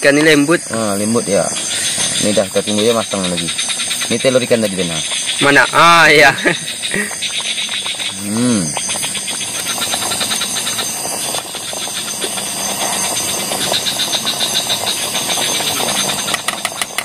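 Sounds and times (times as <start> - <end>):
campfire crackling: 0.0 - 17.0
stew boiling with bubbling hiss: 0.0 - 17.0.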